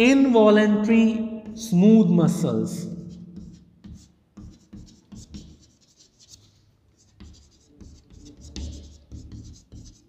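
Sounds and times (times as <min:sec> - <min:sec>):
chalk tapping and scratching: 0:03.0 - 0:10.0.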